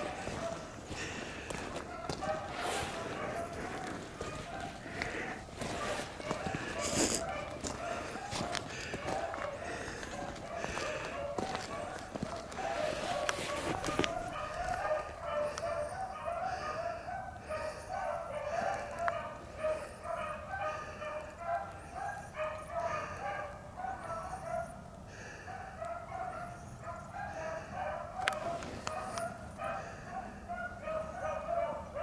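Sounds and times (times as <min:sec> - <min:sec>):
dogs baying: 0:00.0 - 0:32.0.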